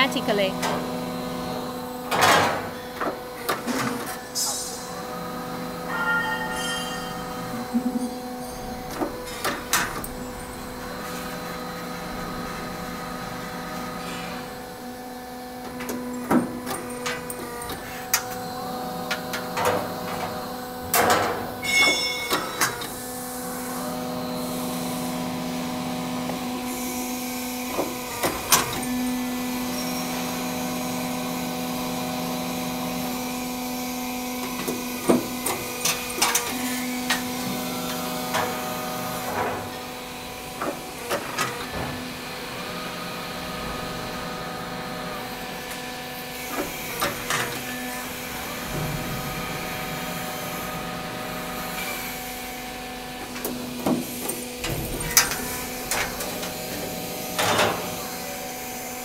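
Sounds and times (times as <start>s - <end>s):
machine humming: 4.2s - 59.0s
sharp metallic knocks: 5.9s - 7.4s, 21.6s - 22.7s.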